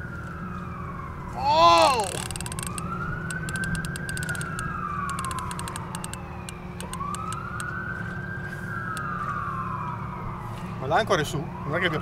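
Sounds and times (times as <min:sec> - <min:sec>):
siren wailing: 0:00.0 - 0:12.0
sharp clicks: 0:02.0 - 0:07.7.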